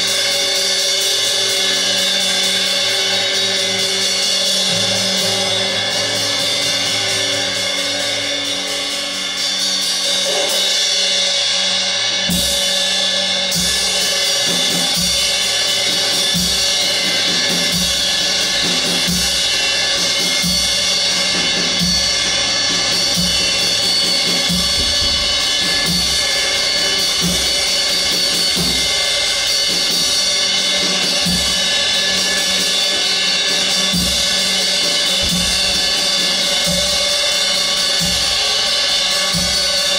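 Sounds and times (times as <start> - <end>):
cymbals shimmering: 0.0 - 39.9
low drum beat: 13.8 - 39.8.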